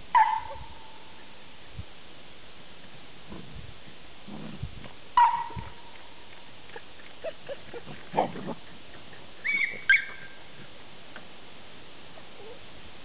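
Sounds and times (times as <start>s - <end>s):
puppies yipping and squealing: 7.2s - 10.4s.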